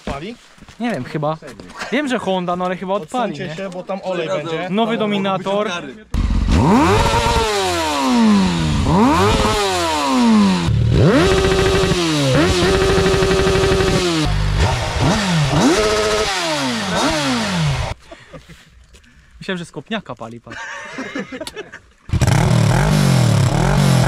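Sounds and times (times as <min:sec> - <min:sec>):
motorcycle engine revving: 0:06.2 - 0:18.0, 0:22.1 - 0:24.0.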